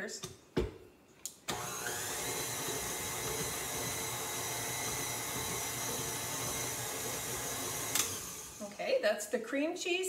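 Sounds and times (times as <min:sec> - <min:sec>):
stand mixer motor running: 0:01.5 - 0:08.6.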